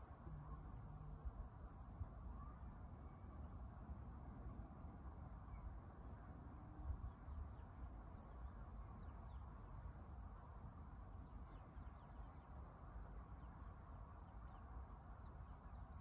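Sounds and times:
low rumble and hiss: 0:00.0 - 0:16.0
faint bird chirps: 0:02.3 - 0:03.5.

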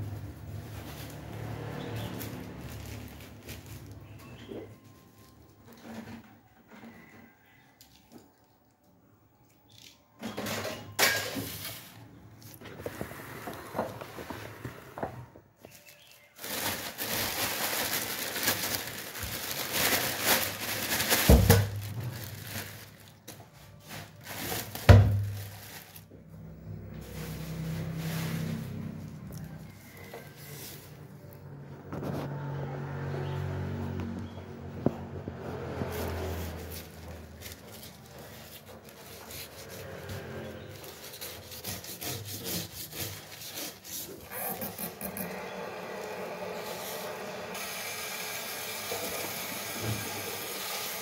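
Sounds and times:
plastic bags crinkling: 0:00.0 - 0:05.8, 0:15.7 - 0:31.3, 0:35.6 - 0:47.4
lime scrubbing fish scales: 0:35.7 - 0:47.2.

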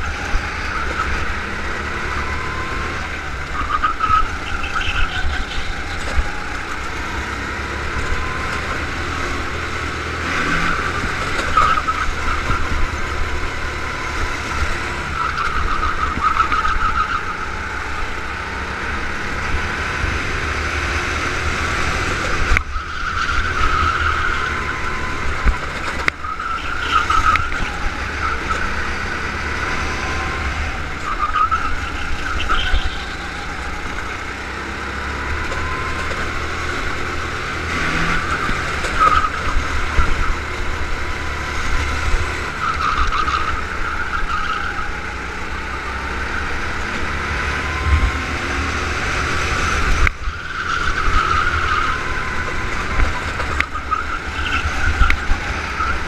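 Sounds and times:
go-kart engine revving: 0:00.0 - 0:56.0
wind rumble on microphone: 0:47.8 - 0:50.4.

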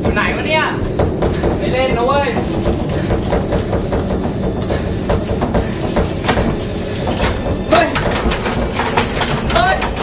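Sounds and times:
loud rumble: 0:00.0 - 0:10.0
clattering clicks: 0:06.1 - 0:10.0.

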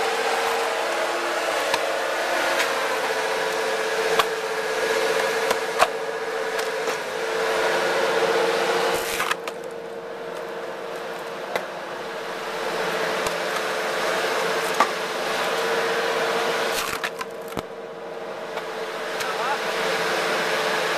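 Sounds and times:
log splitter motor whining: 0:00.0 - 0:20.9
logs cracking and splitting: 0:16.7 - 0:17.7.

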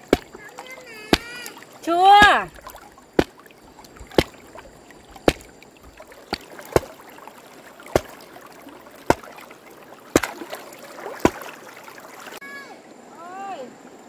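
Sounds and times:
sharp knocks: 0:04.0 - 0:04.4, 0:05.2 - 0:06.9, 0:07.9 - 0:08.2, 0:09.1 - 0:09.3, 0:10.1 - 0:10.4.

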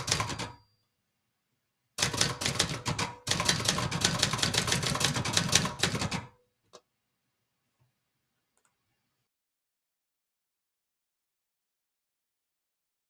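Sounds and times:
typewriter keystrokes clattering: 0:00.0 - 0:00.6, 0:02.0 - 0:06.4.

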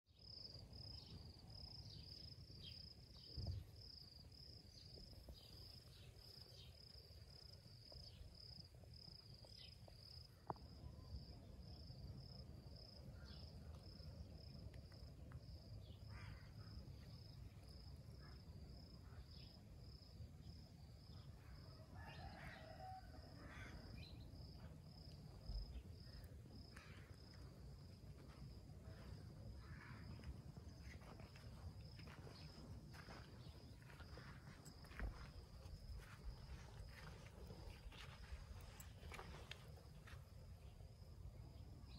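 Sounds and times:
insect chirping: 0:00.1 - 0:41.9.

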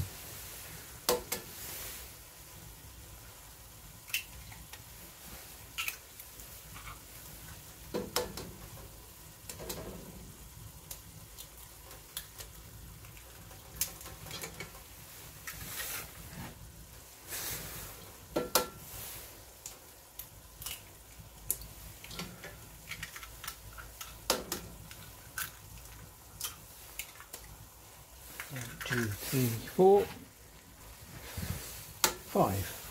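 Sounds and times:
food sizzling: 0:00.0 - 0:32.9
eggs tapping on pot: 0:07.9 - 0:08.7.

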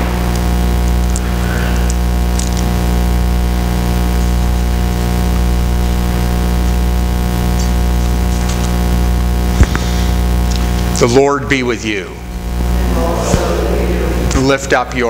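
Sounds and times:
electrical mains hum: 0:00.0 - 0:15.0
faint small clicks: 0:01.1 - 0:02.6.

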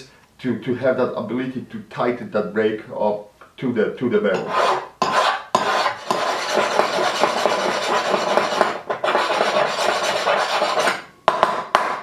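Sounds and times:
metal rasping on file: 0:04.3 - 0:11.0.

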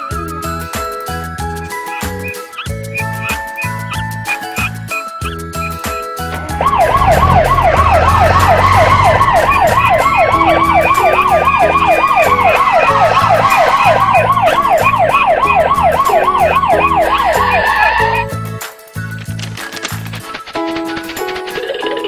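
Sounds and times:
background music: 0:00.0 - 0:22.0
police siren yelping: 0:06.4 - 0:18.3.

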